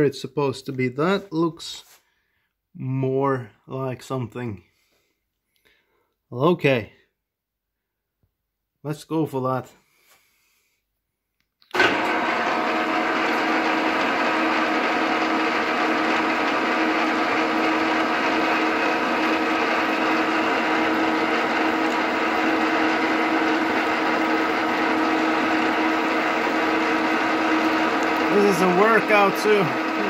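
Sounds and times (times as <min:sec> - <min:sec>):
milling machine whine: 0:11.7 - 0:30.0.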